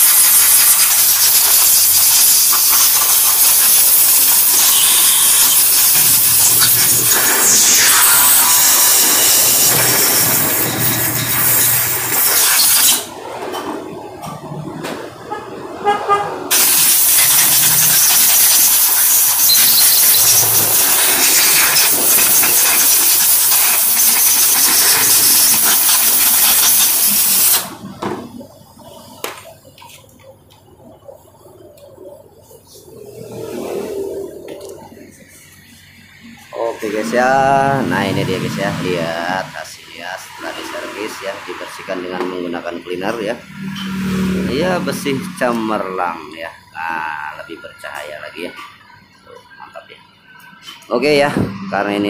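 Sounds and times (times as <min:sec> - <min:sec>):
aerosol spray hissing: 0:00.0 - 0:13.0, 0:16.5 - 0:27.7.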